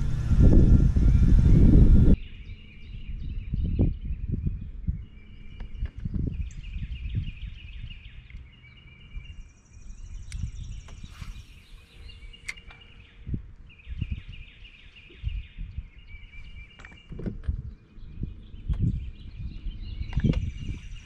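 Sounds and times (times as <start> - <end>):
wind rumbling on microphone: 0.0 - 21.0
small birds chirping: 1.0 - 21.0
sharp clicks: 12.4 - 12.8.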